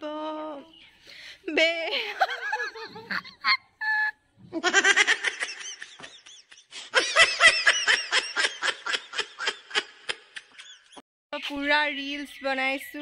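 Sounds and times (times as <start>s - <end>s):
woman laughing hysterically: 1.9s - 11.0s.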